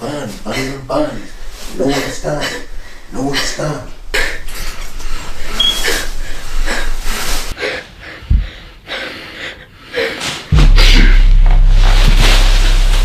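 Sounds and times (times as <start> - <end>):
person breathing hard: 0.0 - 10.5
loud low rumble: 10.5 - 13.0.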